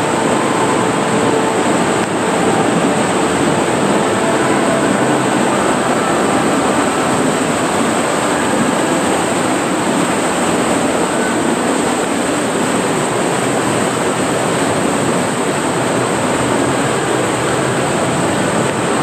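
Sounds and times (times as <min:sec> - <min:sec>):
rushing whitewater: 0:00.0 - 0:19.0.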